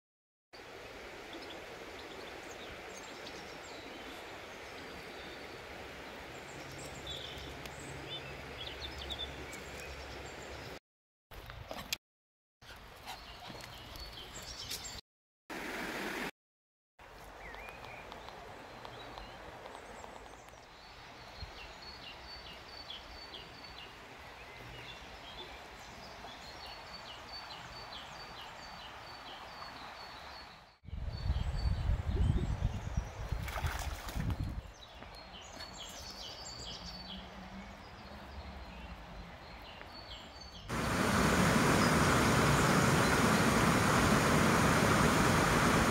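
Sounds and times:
flowing river hiss: 0.6 - 10.8, 15.5 - 16.3, 40.7 - 45.9
small birds chirping: 1.3 - 10.8, 12.6 - 15.0, 17.2 - 45.9
loud steady rushing noise: 40.7 - 45.9
low rumbling: 40.7 - 45.9.

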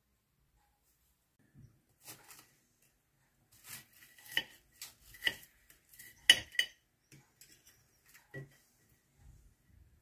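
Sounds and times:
pastry crust crunching: 3.5 - 6.6.

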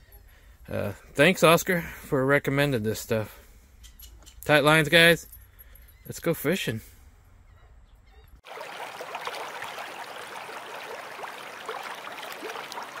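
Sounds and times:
water bubbling: 8.4 - 13.0
water rushing and splashing: 8.4 - 13.0.

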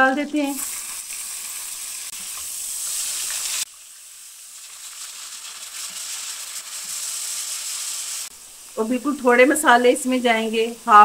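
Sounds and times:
meat sizzling in hot oil: 0.0 - 11.0
spatula stirring in pan: 0.6 - 8.7.

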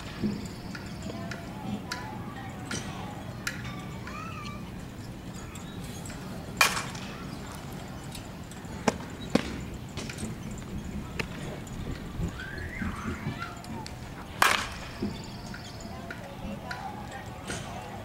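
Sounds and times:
bat hitting ball: 14.4 - 14.9.

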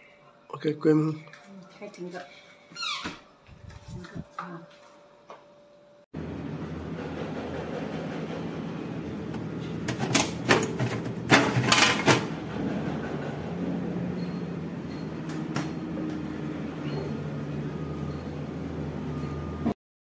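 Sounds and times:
refrigerator doors knocking and clicking: 9.3 - 13.1.

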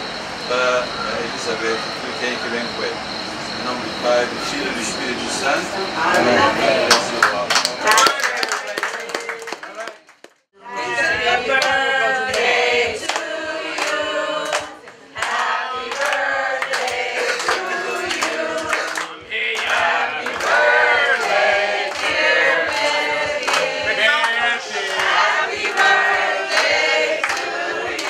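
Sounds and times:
people clapping in time: 6.8 - 10.5, 11.5 - 28.0
group singing: 10.6 - 28.0.

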